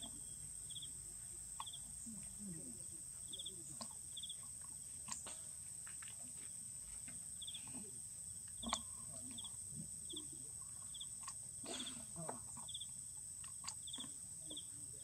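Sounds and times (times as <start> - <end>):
insect chirps: 0.0 - 15.0
faint clicks: 1.6 - 2.6, 8.4 - 9.6, 13.4 - 14.6.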